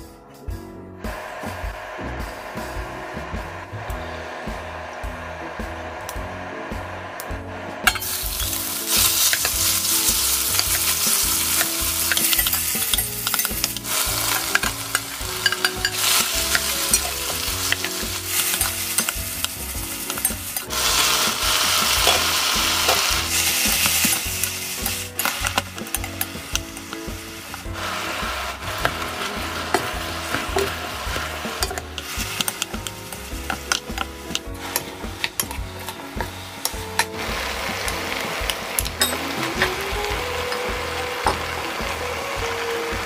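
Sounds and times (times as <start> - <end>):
meat sizzling in hot oil: 7.8 - 43.0
wooden spoon stirring and scraping: 7.9 - 41.8.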